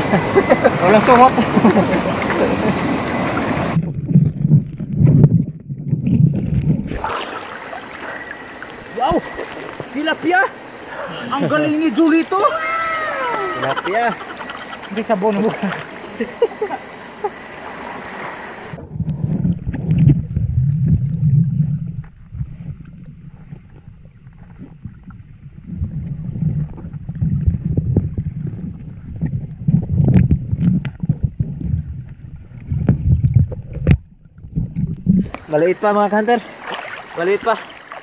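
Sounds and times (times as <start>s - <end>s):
muffled underwater rumble: 0.0s - 7.1s, 18.6s - 35.5s
water splashing: 1.4s - 10.6s, 12.5s - 16.3s, 17.6s - 38.0s.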